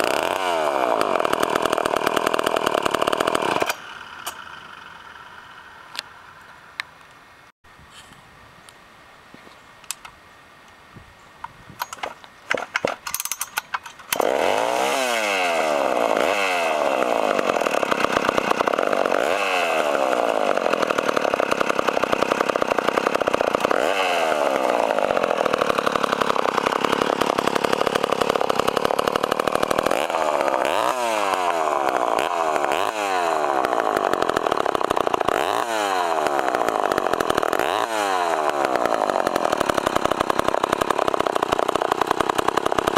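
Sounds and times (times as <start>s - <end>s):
chainsaw engine revving: 0.0s - 5.7s, 12.0s - 42.9s.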